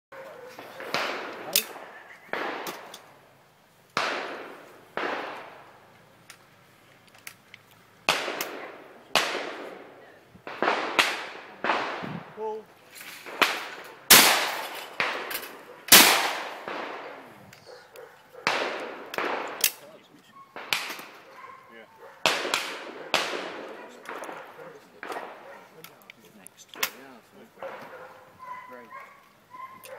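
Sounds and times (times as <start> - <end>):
shotgun shots with echo: 0.6 - 2.9, 4.0 - 5.6, 8.1 - 9.9, 10.5 - 12.2, 13.2 - 17.3, 18.4 - 20.0, 20.6 - 21.3, 22.2 - 25.6.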